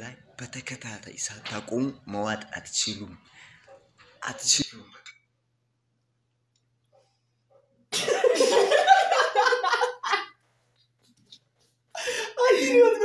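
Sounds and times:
men laughing loudly: 8.0s - 10.4s.

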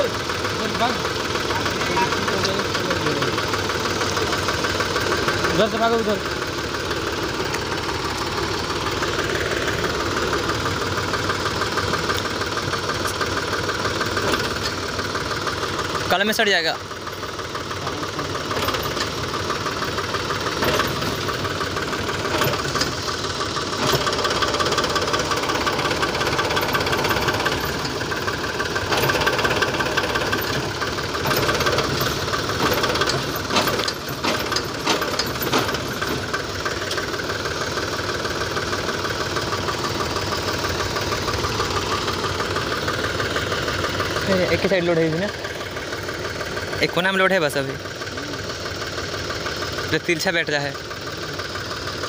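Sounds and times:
tractor diesel engine running: 0.0s - 52.0s.

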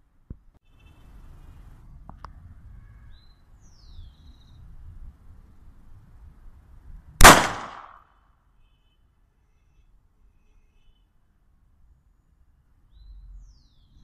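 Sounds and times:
pistol shot: 7.2s - 8.0s.

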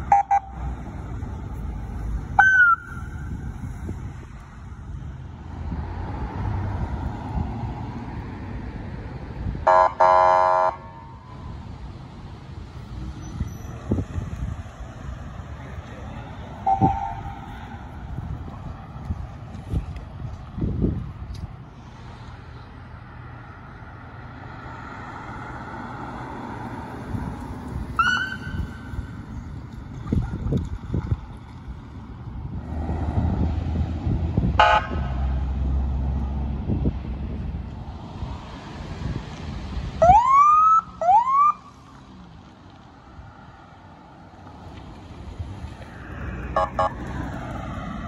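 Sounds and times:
traffic noise: 0.0s - 48.0s
police siren chirp: 2.4s - 3.1s, 28.0s - 28.7s.

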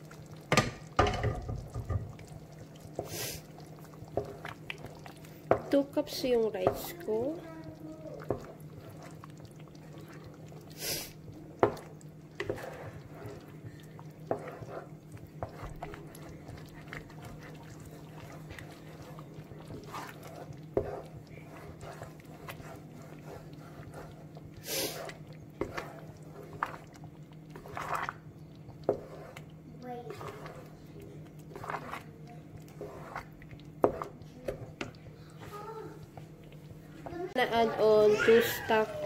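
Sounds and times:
wooden spoon stirring porridge: 0.0s - 39.0s
spoon knocking against pan: 0.5s - 2.1s
hissing scrapes: 31.5s - 34.1s.

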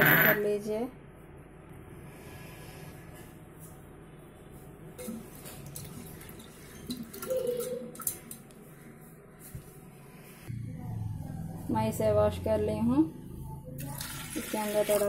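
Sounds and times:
water sloshing in a pot: 5.0s - 8.5s, 13.8s - 15.0s.

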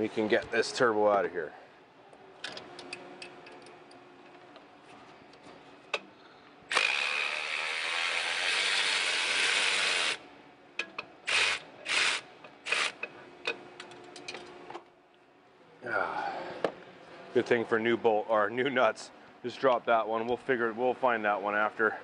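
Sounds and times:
ratchet clicking: 6.7s - 10.2s, 11.3s - 13.1s.

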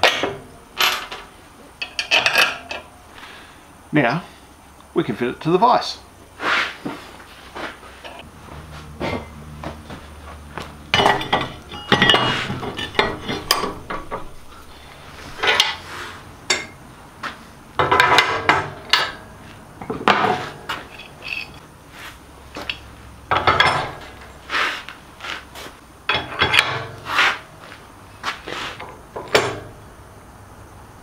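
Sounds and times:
steel parts clanking: 0.0s - 3.0s, 10.9s - 16.8s, 17.8s - 21.6s, 22.5s - 24.4s, 26.1s - 27.2s.

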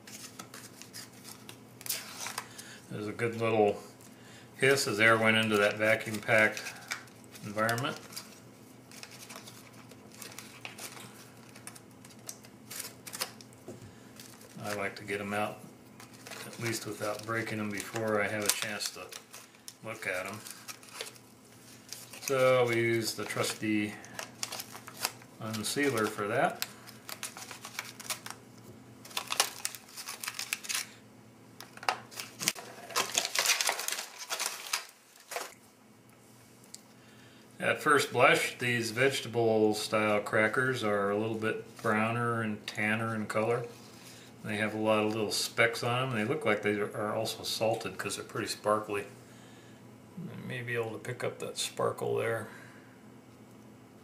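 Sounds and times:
plastic pouch crinkling: 5.0s - 13.6s, 14.2s - 28.4s, 29.0s - 31.0s, 31.6s - 35.6s.

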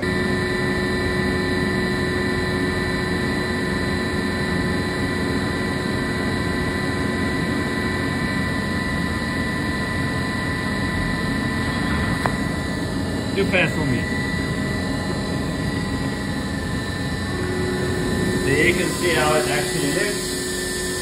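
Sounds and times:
milling machine spindle whine: 0.0s - 21.0s
hiss of cutting and coolant spray: 18.5s - 21.0s.

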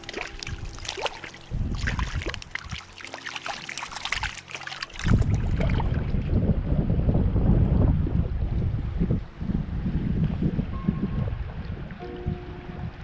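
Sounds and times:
wind buffeting the microphone: 0.0s - 2.9s, 4.9s - 13.0s
creek water trickling: 0.0s - 6.4s
faint background music tones: 9.2s - 13.0s.

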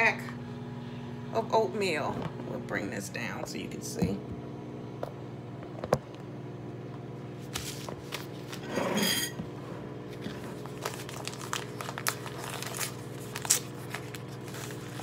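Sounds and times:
steady appliance hum: 0.0s - 15.0s
paper packet rustling and tearing: 7.4s - 8.7s, 10.1s - 15.0s.

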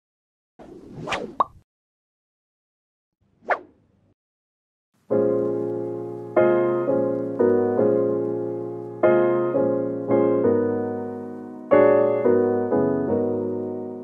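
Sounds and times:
slow piano chords: 5.0s - 14.0s.

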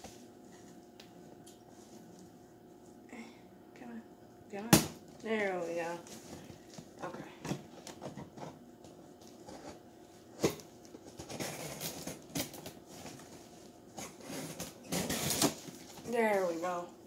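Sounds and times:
cardboard scraping and rustling: 11.0s - 16.4s.

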